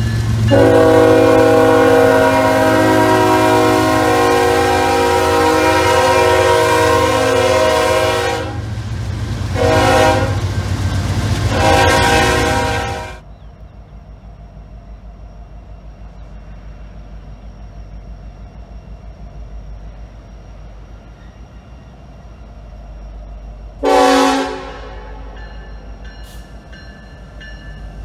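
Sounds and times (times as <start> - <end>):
locomotive engine rumble: 0.0 - 28.0
locomotive air horn: 0.5 - 8.7, 9.5 - 10.5, 11.5 - 13.2, 23.8 - 25.4.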